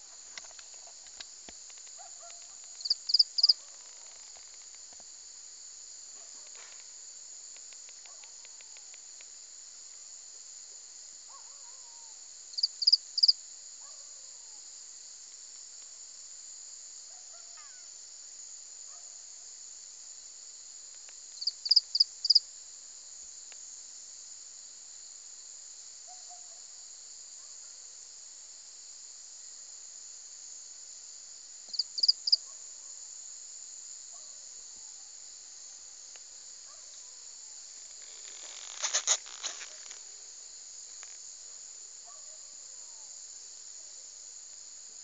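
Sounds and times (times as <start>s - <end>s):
insect chorus: 0.0s - 45.0s.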